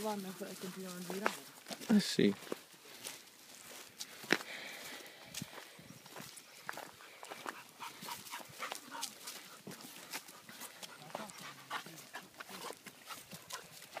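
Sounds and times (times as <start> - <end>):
footsteps on dry leaves: 0.0 - 14.0
dog panting: 6.8 - 14.0.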